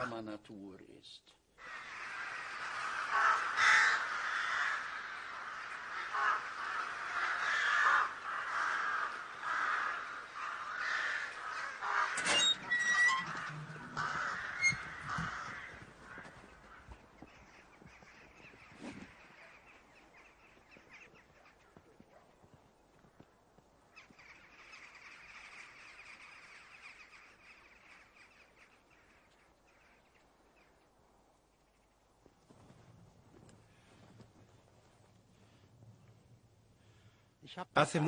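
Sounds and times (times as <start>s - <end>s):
crows cawing: 1.6s - 21.9s, 23.9s - 30.7s.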